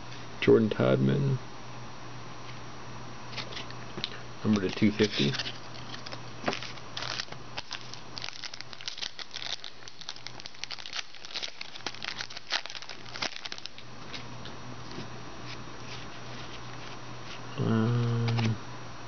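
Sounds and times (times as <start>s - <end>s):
foil wrapper crinkling and tearing: 4.6s - 14.2s.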